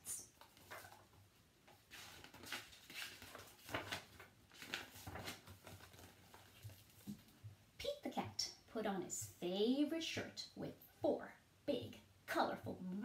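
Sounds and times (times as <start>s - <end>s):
book pages rustling: 0.2s - 7.4s.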